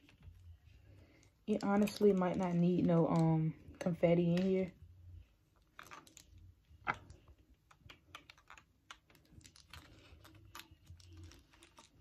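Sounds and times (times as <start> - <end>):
hands handling small items: 5.5 - 12.0.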